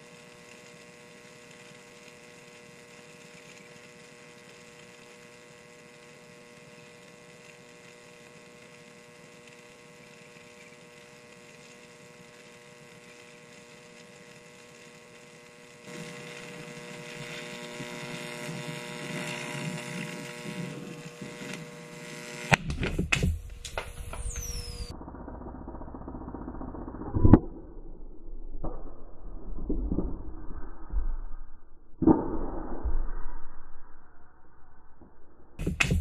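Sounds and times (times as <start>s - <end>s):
battery venting hiss: 0.0s - 25.0s, 35.6s - 36.0s
electric arc buzzing: 0.0s - 32.6s, 35.1s - 36.0s
mains hum: 0.0s - 36.0s
battery bursting with a bang: 35.6s - 36.0s.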